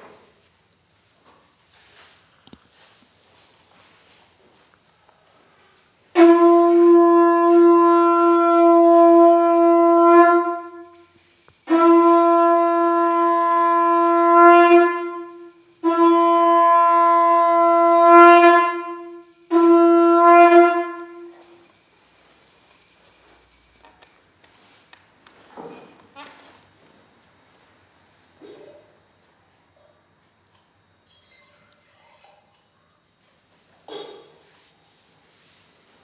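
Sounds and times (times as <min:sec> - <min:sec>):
conch shell blasts: 0:06.1 - 0:24.3.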